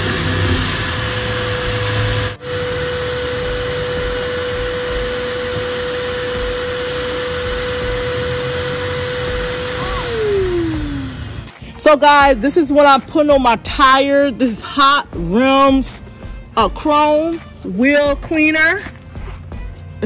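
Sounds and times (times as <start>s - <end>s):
shop vacuum whine: 0.0s - 15.1s.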